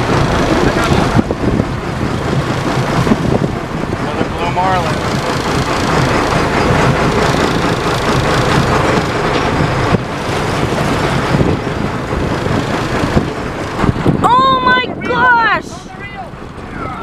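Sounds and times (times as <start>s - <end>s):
boat motor running: 0.0s - 17.0s
wind rushing on microphone: 0.0s - 17.0s.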